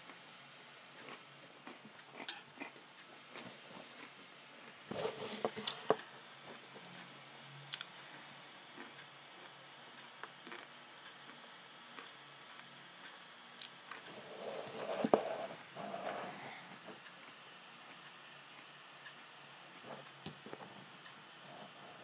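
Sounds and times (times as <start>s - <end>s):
soft ticks: 17.0s - 19.3s, 19.9s - 21.2s.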